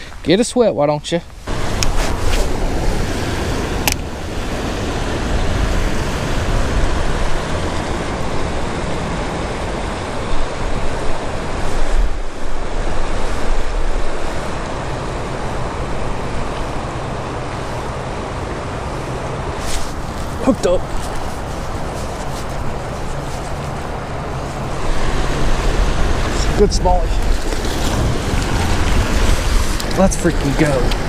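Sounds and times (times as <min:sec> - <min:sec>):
wind buffeting microphone: 0:01.2 - 0:31.0
river whitewater rushing: 0:01.5 - 0:31.0
sharp click: 0:03.8 - 0:04.0.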